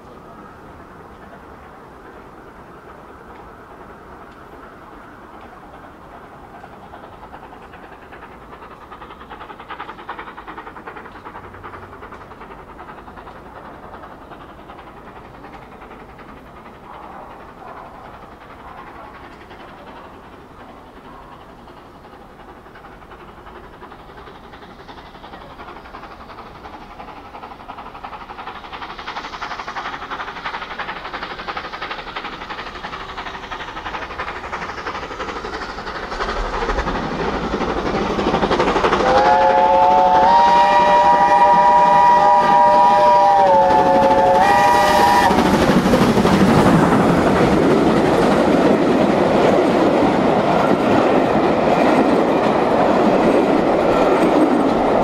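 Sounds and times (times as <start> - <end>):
steam locomotive pounding: 0.0 - 55.0
steam locomotive chime whistle: 39.0 - 45.5.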